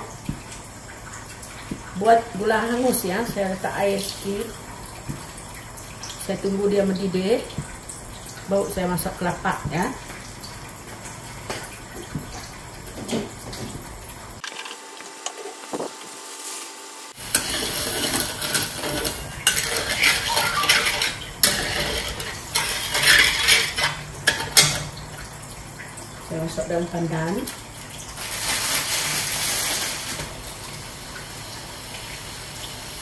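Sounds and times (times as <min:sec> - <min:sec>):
metal ladle scraping a wok: 0:17.2 - 0:24.6.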